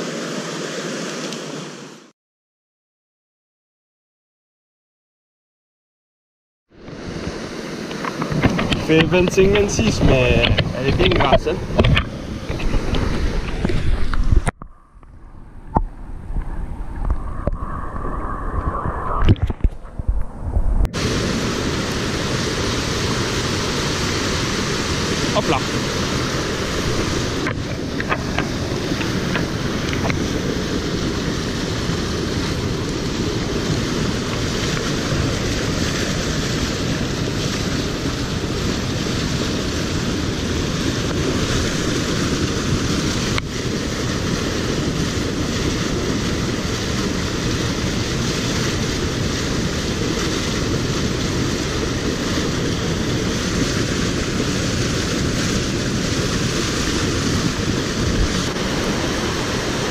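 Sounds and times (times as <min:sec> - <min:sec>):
stream rushing over rocks: 0:00.0 - 0:02.1, 0:06.8 - 0:14.6, 0:21.0 - 0:59.9.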